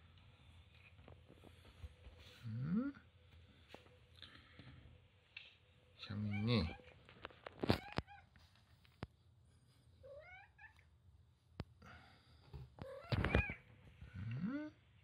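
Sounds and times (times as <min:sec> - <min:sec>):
cats meowing: 0:07.6 - 0:08.4, 0:10.0 - 0:10.8, 0:12.8 - 0:13.7.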